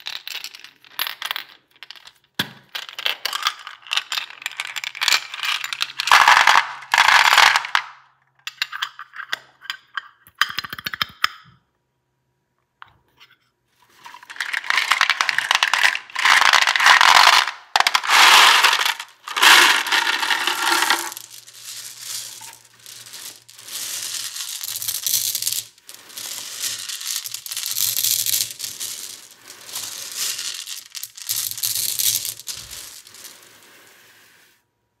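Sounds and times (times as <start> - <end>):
gumballs rattling on plastic: 2.9 - 7.8, 14.0 - 33.5
gumballs pouring out in rush: 14.3 - 34.0.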